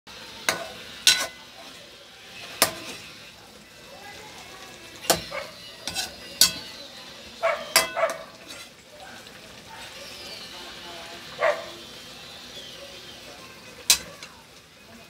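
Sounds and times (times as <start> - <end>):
sauce bubbling: 0.1 - 15.0
metal ladle clinking on pan: 0.5 - 1.4, 5.0 - 6.8, 7.7 - 8.7, 13.9 - 14.1.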